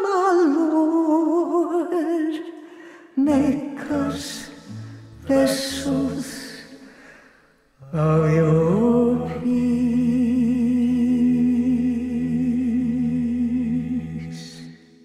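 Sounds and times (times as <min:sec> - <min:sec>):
wordless sung note with vibrato: 0:03.4 - 0:06.6
low steady drone: 0:04.6 - 0:06.4.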